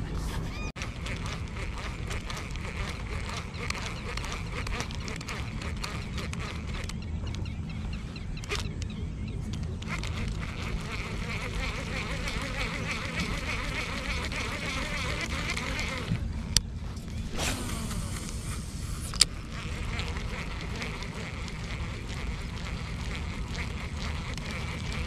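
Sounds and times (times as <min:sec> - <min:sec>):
insects buzzing and chirping: 0:00.6 - 0:25.0
low rumble: 0:16.2 - 0:19.5.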